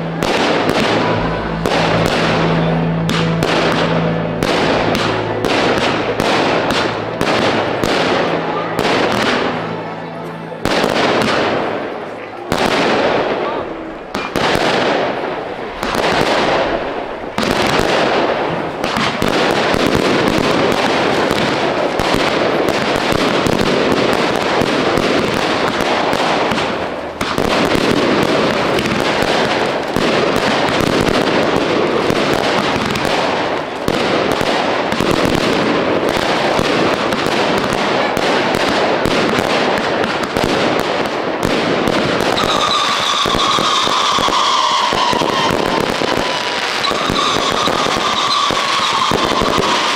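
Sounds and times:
fireworks bangs and crackling: 0:00.0 - 0:49.9
whistling rockets: 0:41.4 - 0:49.9.

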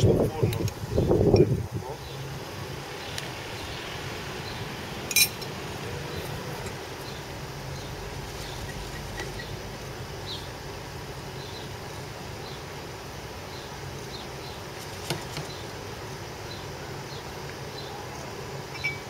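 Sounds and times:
low burner hum: 0:00.0 - 0:19.0
metal spoon clinking on dish: 0:05.1 - 0:05.5.

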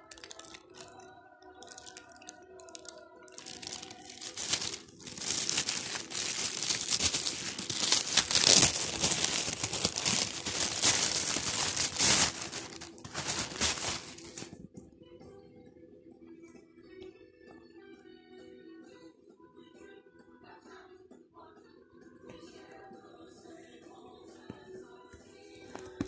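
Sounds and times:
plastic bag crinkling: 0:00.0 - 0:01.0, 0:01.6 - 0:14.6.

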